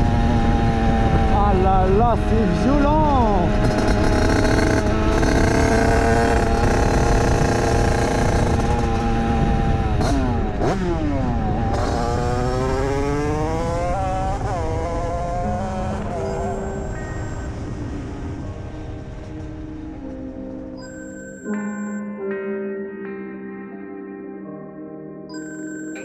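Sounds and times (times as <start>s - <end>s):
two-stroke engine revving: 2.2s - 17.7s.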